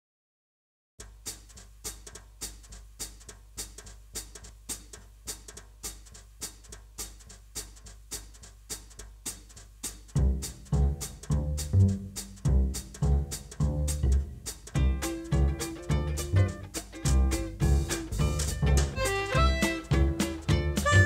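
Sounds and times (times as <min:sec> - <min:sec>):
percussion beat of sharp ticks: 0:01.0 - 0:21.0
deep plucked bass notes: 0:10.2 - 0:21.0.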